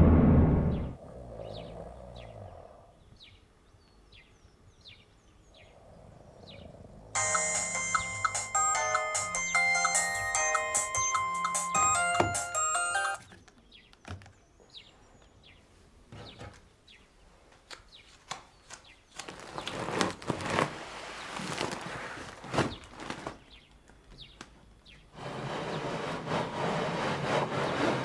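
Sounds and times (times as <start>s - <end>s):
steady noise: 0.0s - 1.0s
phone ringtone melody: 7.2s - 13.2s.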